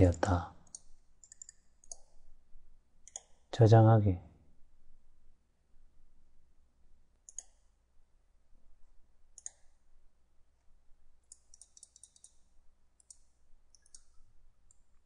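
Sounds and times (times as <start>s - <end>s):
computer mouse clicks: 0.0s - 2.2s, 3.0s - 3.5s, 7.2s - 7.7s, 9.3s - 9.8s, 11.2s - 15.0s.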